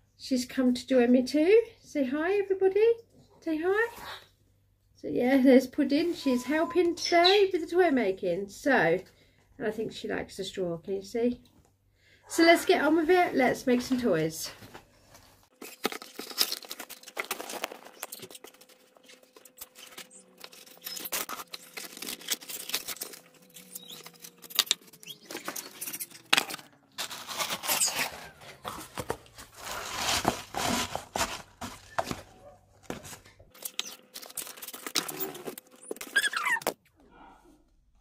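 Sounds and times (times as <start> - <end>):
paper rustling and crinkling: 13.0 - 36.2.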